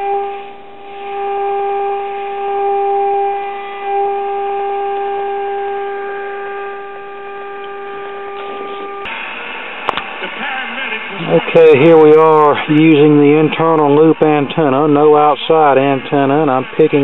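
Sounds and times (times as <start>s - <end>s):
steady test tone from radio speaker: 0.0s - 9.1s.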